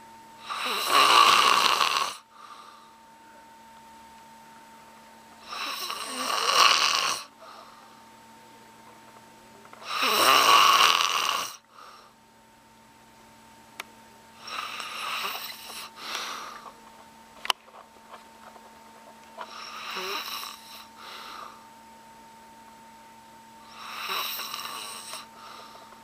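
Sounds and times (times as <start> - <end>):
man snoring heavily: 0.4 - 2.8, 5.4 - 7.7, 9.8 - 12.1, 14.4 - 16.6, 19.4 - 21.6, 23.7 - 25.8.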